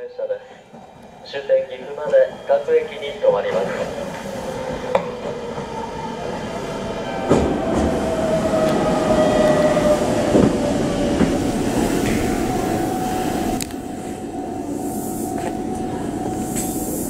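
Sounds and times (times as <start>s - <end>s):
train rumble: 0.6s - 17.0s
electric train whining tone: 0.7s - 17.0s
train knocks: 7.0s - 17.0s.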